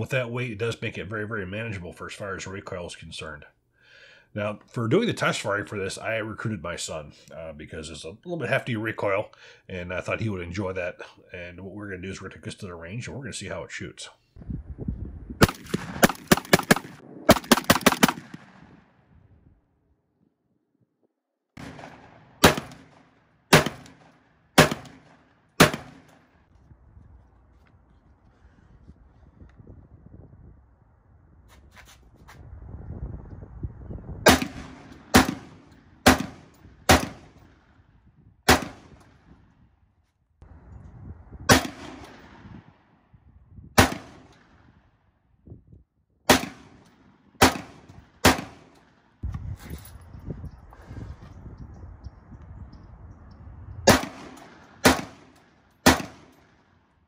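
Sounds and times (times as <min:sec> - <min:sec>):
shotgun blasts: 0:15.4 - 0:19.0, 0:21.6 - 0:26.3, 0:34.2 - 0:37.7, 0:38.4 - 0:39.3, 0:41.5 - 0:42.7, 0:43.8 - 0:44.8, 0:46.3 - 0:48.8, 0:53.9 - 0:56.6.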